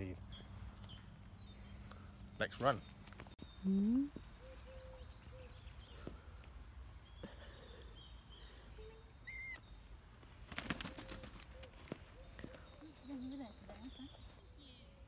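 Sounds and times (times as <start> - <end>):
bird chirp: 0.0 - 15.0
bird wingbeats: 10.4 - 12.5.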